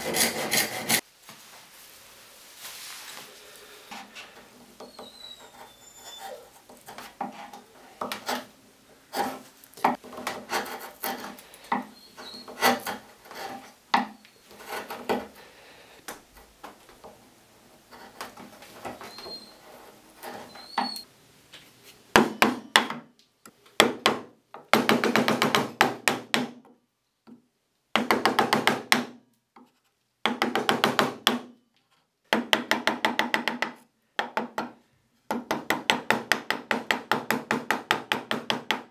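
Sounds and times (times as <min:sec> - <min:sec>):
chisel rasping wood: 0:00.0 - 0:01.0, 0:09.1 - 0:15.4
hand tools scraping and tapping wood: 0:00.0 - 0:01.0, 0:03.9 - 0:25.7, 0:29.6 - 0:38.9.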